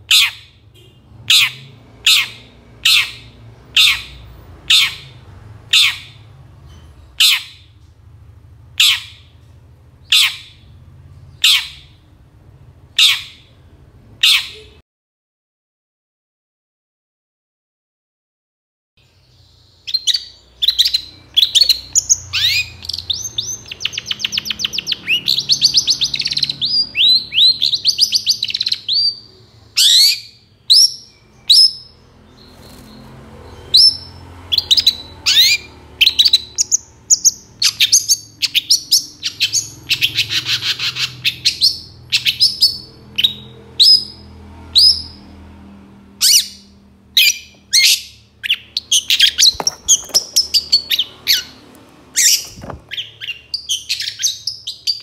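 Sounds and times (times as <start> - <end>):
bird chattering trill: 0.0 - 0.5, 1.3 - 6.2, 11.4 - 12.0, 19.9 - 32.0, 33.8 - 44.2
bird singing high sharp notes: 19.1 - 45.2.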